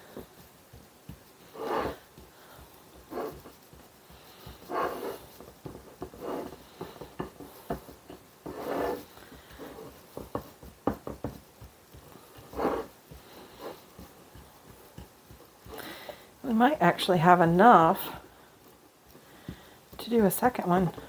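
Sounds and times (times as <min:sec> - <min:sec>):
fork scraping on ceramic plate: 0:01.5 - 0:02.0, 0:03.1 - 0:03.4, 0:04.7 - 0:05.3, 0:08.4 - 0:09.1, 0:12.4 - 0:12.9
breathy puffs: 0:15.7 - 0:16.4.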